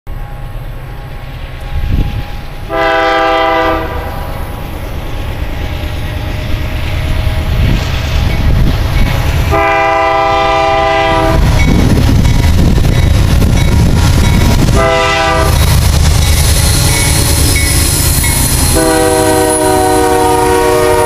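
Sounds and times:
train rumbling: 0.1s - 21.0s
locomotive air horn: 2.7s - 4.2s, 9.5s - 11.6s, 14.7s - 15.7s, 18.6s - 21.0s.

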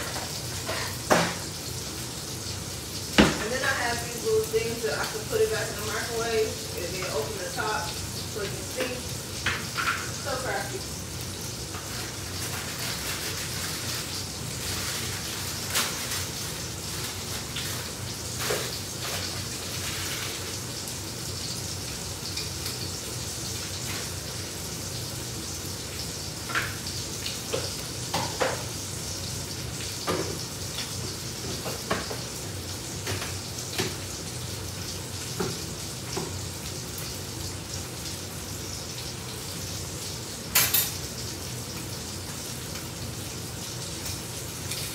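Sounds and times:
food sizzling in a frying pan: 0.0s - 44.9s
kitchen utensils clinking: 8.7s - 10.6s, 40.5s - 41.0s.

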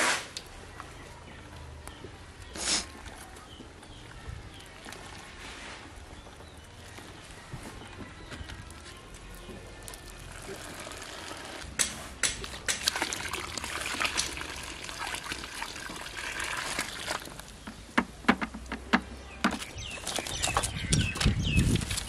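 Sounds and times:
liquid pouring into a pot: 12.8s - 17.5s.

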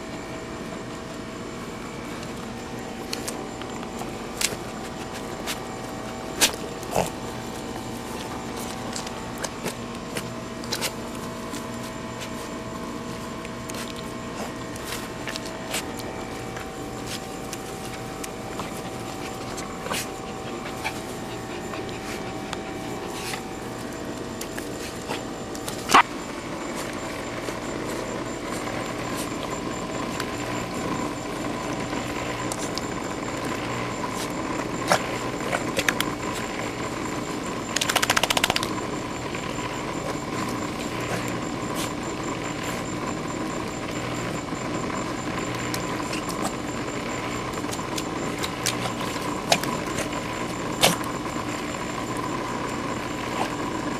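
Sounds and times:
pool pump humming: 0.0s - 53.9s
sharp clicks and rattle: 37.7s - 38.7s.

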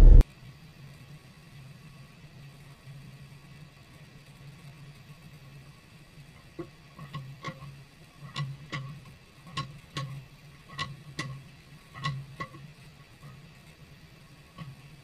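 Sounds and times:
low steady hum: 0.0s - 0.2s.

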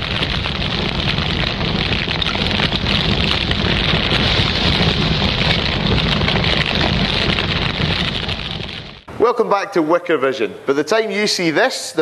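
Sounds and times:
fire roaring and crackling: 0.0s - 9.1s.

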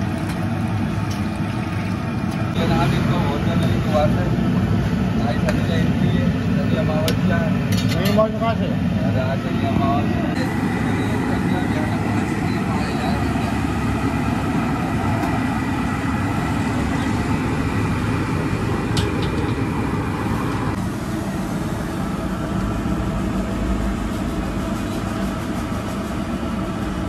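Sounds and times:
steady low roaring: 8.3s - 27.0s.

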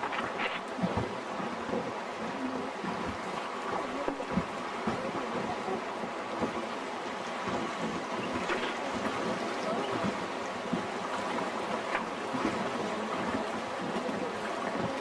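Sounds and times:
river water rushing and splashing: 0.0s - 15.0s.

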